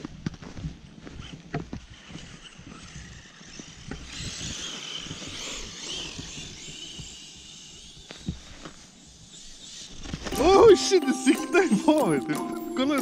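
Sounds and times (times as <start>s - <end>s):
electric motor whining: 1.2s - 10.8s.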